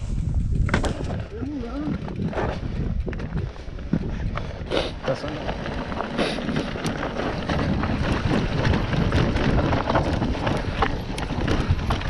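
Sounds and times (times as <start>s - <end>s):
bike clicks and rattles: 0.0s - 12.0s
wind buffeting microphone: 0.0s - 12.0s
tyres crunching over rock: 5.0s - 12.0s.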